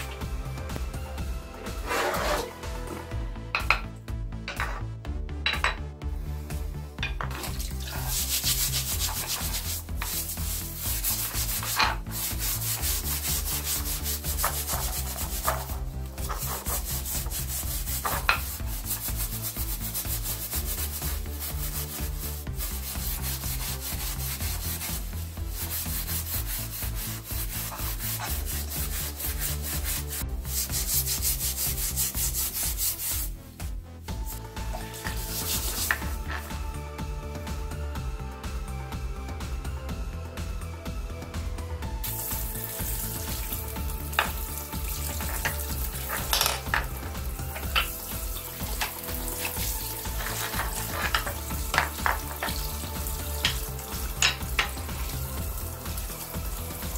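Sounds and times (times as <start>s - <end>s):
scouring pad scrubbing metal: 7.3s - 33.3s, 34.7s - 36.5s, 42.0s - 56.9s.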